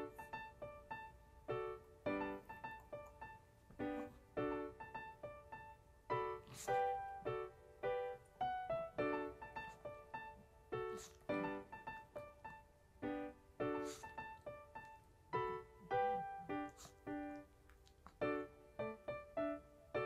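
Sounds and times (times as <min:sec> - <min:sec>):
bouncy piano music: 0:00.0 - 0:20.0.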